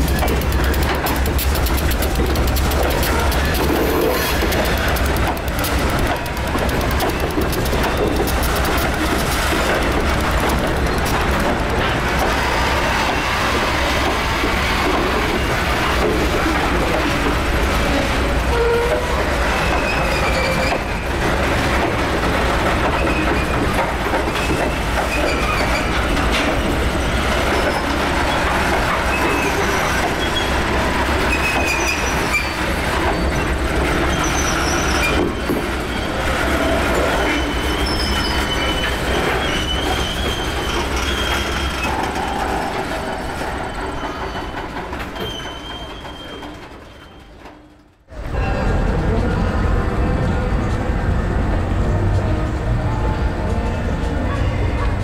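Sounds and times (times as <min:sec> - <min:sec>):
train wheels rumbling on rails: 0:00.0 - 0:55.0
high wheel squeals: 0:24.3 - 0:47.4.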